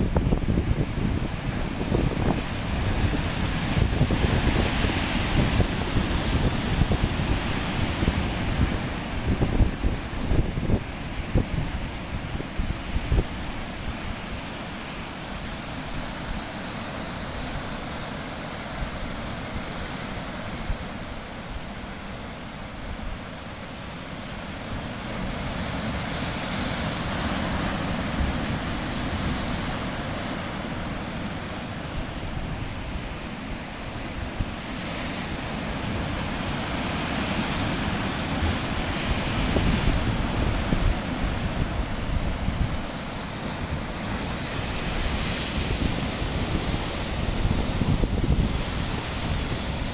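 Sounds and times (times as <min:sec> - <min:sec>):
wind buffeting microphone: 0:00.0 - 0:14.8, 0:24.4 - 0:49.9
surf breaking over rocks: 0:00.0 - 0:49.9.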